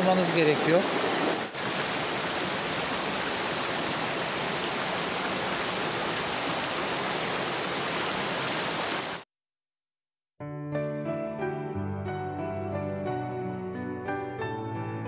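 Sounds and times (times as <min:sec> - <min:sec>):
creek rushing over rocks: 0:00.0 - 0:09.2.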